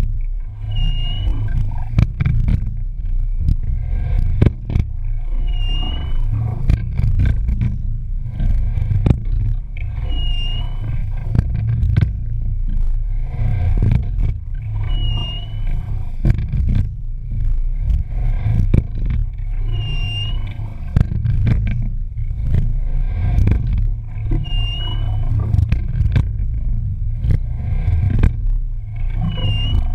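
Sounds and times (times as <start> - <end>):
rumble of water and wind: 0.0 - 29.9
short squeak: 0.6 - 1.5, 5.3 - 6.4, 9.9 - 11.1, 14.8 - 15.9, 19.6 - 20.6, 24.3 - 25.4, 29.1 - 29.9.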